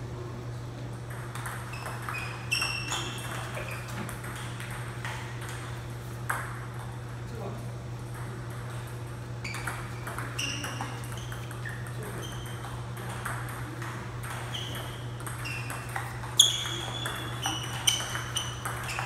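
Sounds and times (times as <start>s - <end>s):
steady low hum: 0.0s - 19.0s
table tennis ball clicks: 1.1s - 5.7s, 9.5s - 19.0s.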